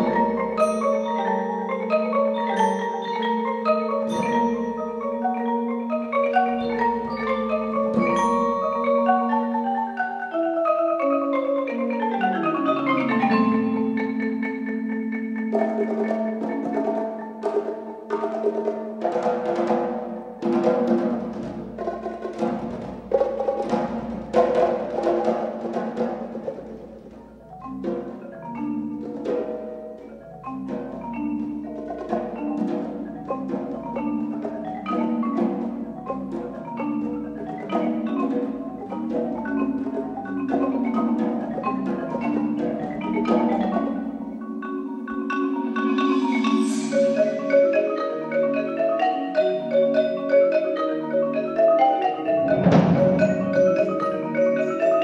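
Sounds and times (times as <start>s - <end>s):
higher mallet instruments: 0.0s - 55.0s
marimba playing quick runs: 0.0s - 55.0s
loud percussion stroke: 6.6s - 9.3s, 15.5s - 49.9s, 52.1s - 55.0s.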